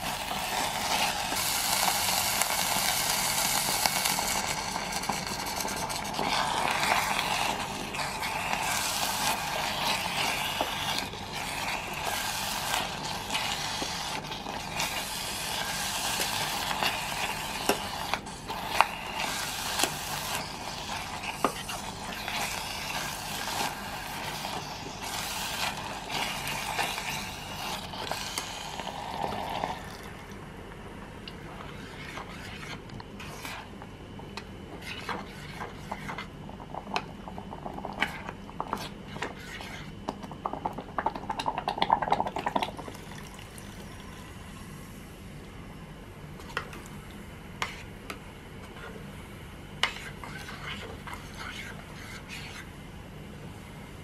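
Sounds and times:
spoon stirring paste in metal pot: 5.0s - 28.7s, 49.8s - 52.7s.

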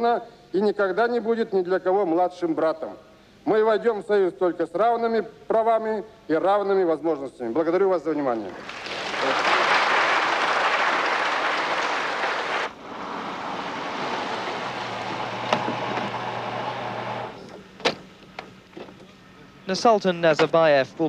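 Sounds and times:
audience applauding: 8.5s - 15.4s
car low hum: 12.6s - 19.2s
car door clicks: 15.4s - 16.2s.

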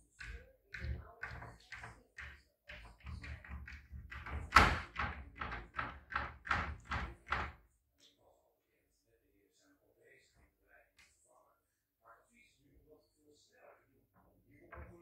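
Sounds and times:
cabinet door tapping and thudding: 0.2s - 7.6s.

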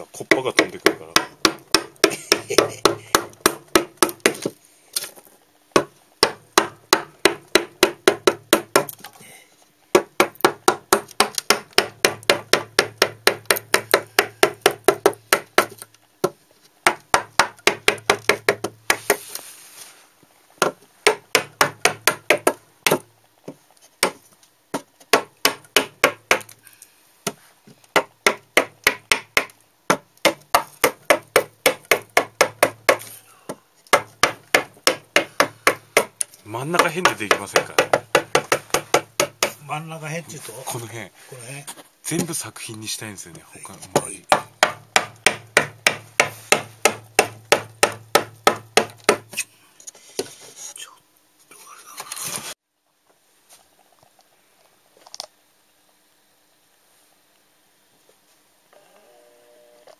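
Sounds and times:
hammer striking chisel into wood: 0.3s - 4.5s, 5.8s - 9.0s, 10.0s - 19.2s, 20.6s - 23.1s, 24.8s - 26.5s, 27.9s - 33.1s, 33.9s - 39.6s, 44.0s - 49.3s.

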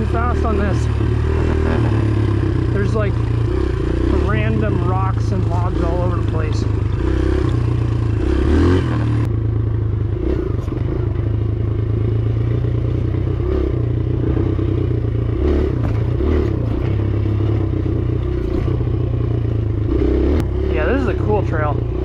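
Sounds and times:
dirt bike engine revving: 0.0s - 22.0s
clattering knocks over bumps: 15.7s - 19.1s.

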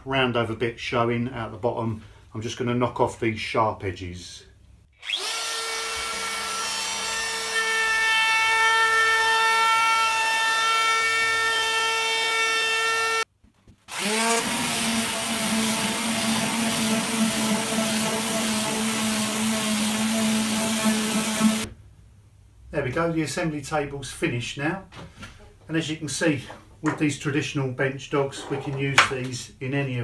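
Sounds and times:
palm sander buzzing: 5.0s - 13.3s, 13.9s - 21.7s.

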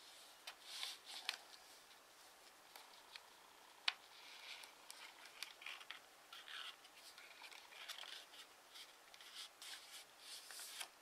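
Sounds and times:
paper rustling and creasing: 4.0s - 11.0s.

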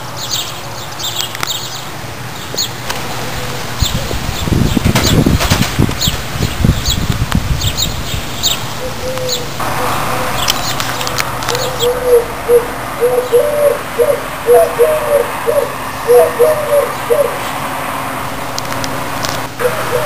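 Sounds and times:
small birds chirping: 0.0s - 17.6s
doves cooing: 2.9s - 4.5s, 8.7s - 17.5s, 19.6s - 20.0s.

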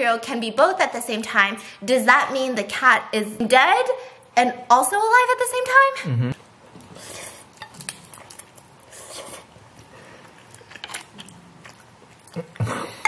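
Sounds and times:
person slurping noodles: 8.8s - 10.4s.

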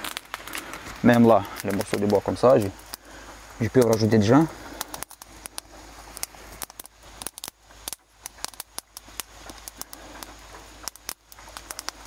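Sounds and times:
kindling fire crackling: 0.0s - 12.0s
sticks laid on fire: 0.0s - 12.0s.

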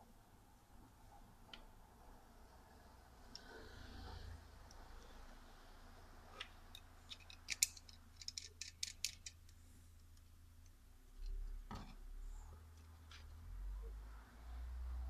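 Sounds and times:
plastic parts clicking: 6.4s - 10.3s.

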